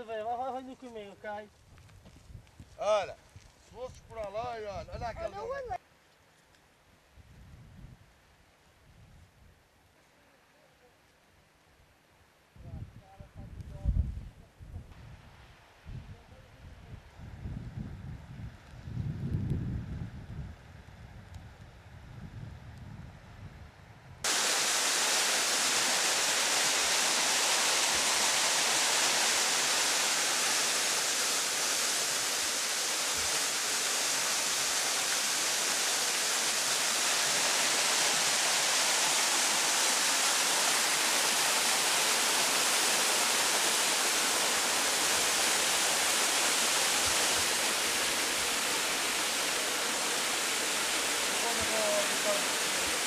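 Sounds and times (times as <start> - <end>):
wind rumble on microphone: 1.6 - 5.1, 7.2 - 8.1, 12.6 - 24.2
waterfall rushing into pool: 24.2 - 53.0.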